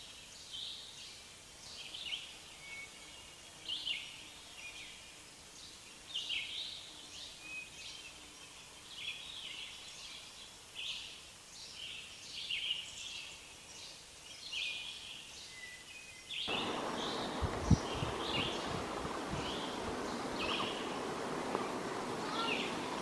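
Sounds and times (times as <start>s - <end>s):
faint outdoor background noise: 0.0s - 23.0s
bird calling: 16.5s - 23.0s.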